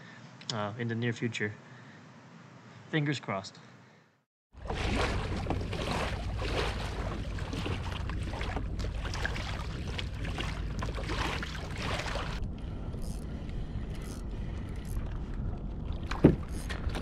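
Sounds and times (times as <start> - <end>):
water rushing: 4.6 - 12.4.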